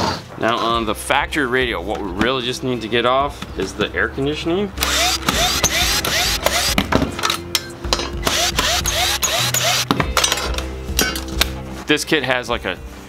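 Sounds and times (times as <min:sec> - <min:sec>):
cordless drill whining: 0:04.8 - 0:06.8, 0:08.2 - 0:09.9.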